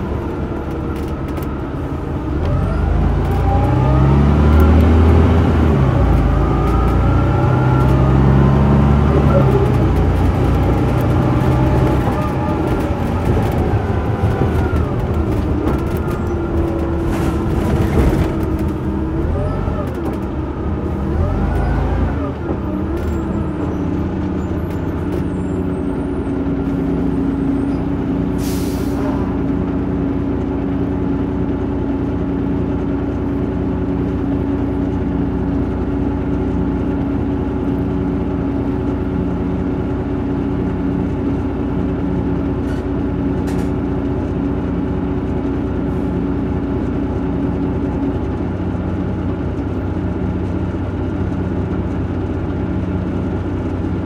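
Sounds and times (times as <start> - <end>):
bus diesel engine: 0.0 - 54.0
short air hiss: 28.4 - 29.1.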